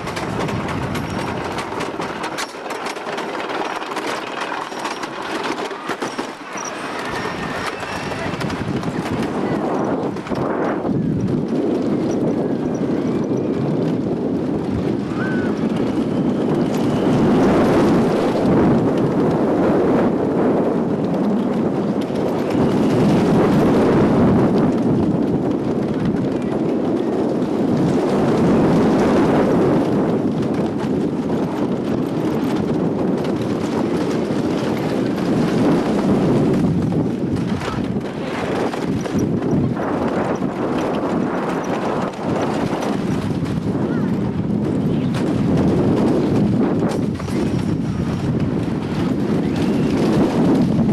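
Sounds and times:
roller coaster wheels clattering: 0.0s - 50.9s.

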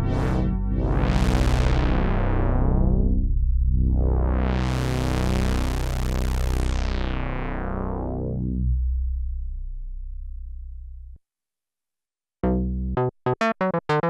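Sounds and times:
synthesizer chord with filter sweep: 0.0s - 10.0s.

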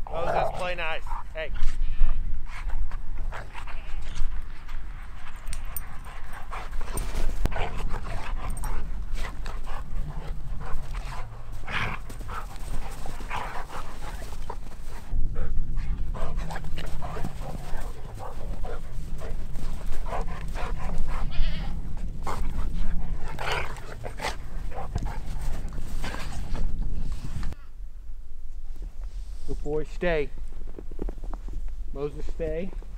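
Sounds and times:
steady low rumble: 3.8s - 29.4s.

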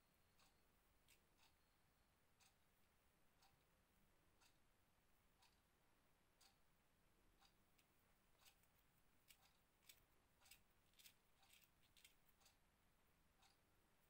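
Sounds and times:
crochet hook and beads clicking: 7.8s - 12.6s.

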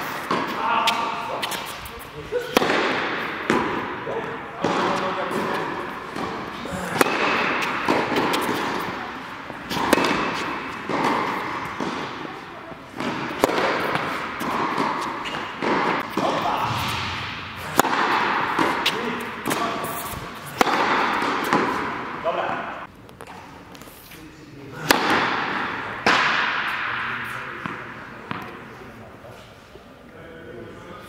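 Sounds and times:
tennis ball bouncing: 0.1s - 22.4s, 24.8s - 28.6s
tennis ball struck by rackets: 2.5s - 4.0s, 4.6s - 22.4s, 24.8s - 28.6s.

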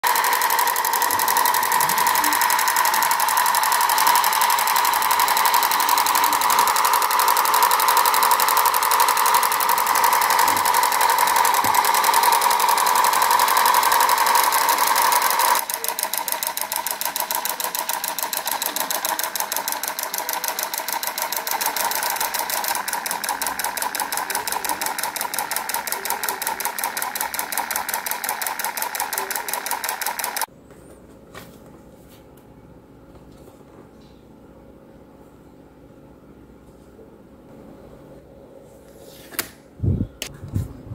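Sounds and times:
miniature diesel engine clatter: 0.0s - 30.5s.

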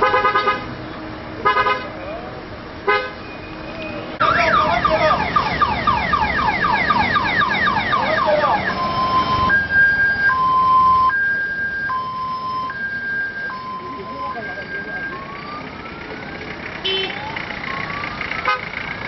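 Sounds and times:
electronic siren yelp: 4.2s - 18.7s
two-tone hi-lo siren: 4.2s - 18.7s.

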